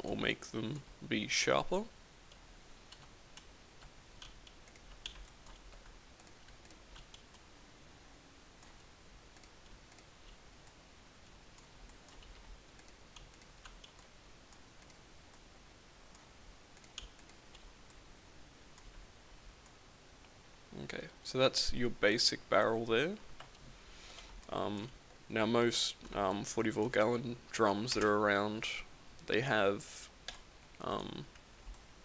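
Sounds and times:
low hiss: 0.0 - 32.0
computer mouse and keyboard clicks: 4.2 - 7.4, 11.6 - 14.1.

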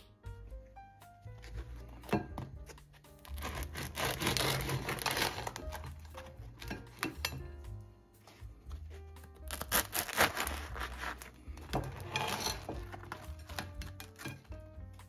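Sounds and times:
soft piano music: 0.0 - 15.0
scraping and rubbing on bread: 3.2 - 6.6, 9.5 - 14.2.

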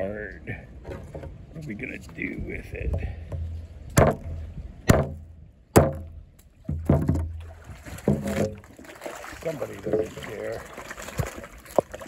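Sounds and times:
bread pounded on wood knocks: 4.0 - 5.2.

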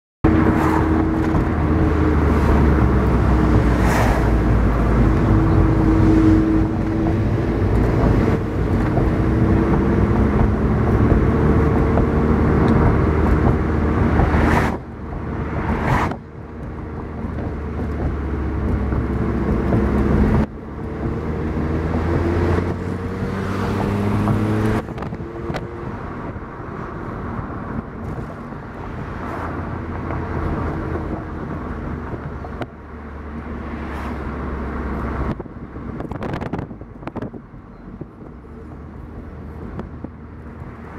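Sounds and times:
car engine and road rumble: 0.2 - 40.9.

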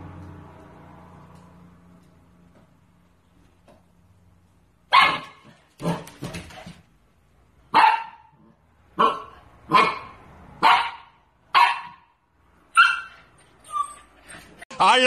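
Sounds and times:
puppy barking: 4.9 - 6.2, 7.7 - 13.9.

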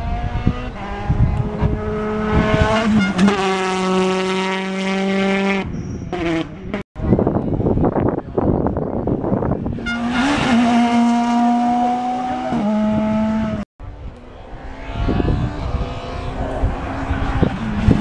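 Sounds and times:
rally car engine at high revs: 0.0 - 6.8, 9.7 - 13.6, 14.5 - 18.0
rough engine and tyre noise: 0.0 - 18.0.

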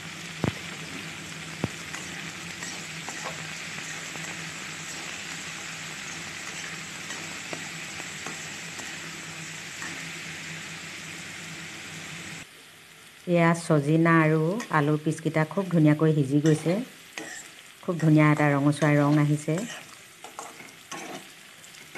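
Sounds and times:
food sizzling in oil: 0.0 - 21.9
metal spatula scraping a pan: 1.8 - 9.1, 16.4 - 17.7, 18.4 - 21.9.

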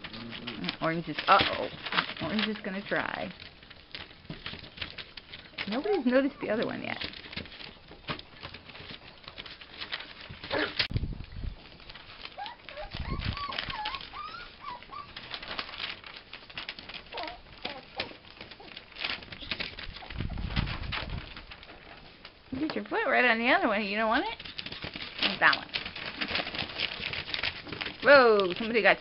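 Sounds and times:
paws scrabbling: 0.0 - 11.0, 11.6 - 29.0
paper crackling: 0.0 - 29.0
puppy whines: 12.3 - 15.4, 17.1 - 18.8.

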